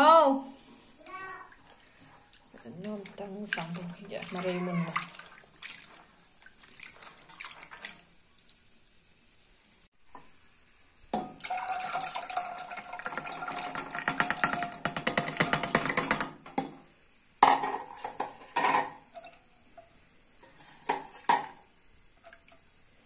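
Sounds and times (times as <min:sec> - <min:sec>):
water and lentils pouring into pot: 0:11.3 - 0:16.2.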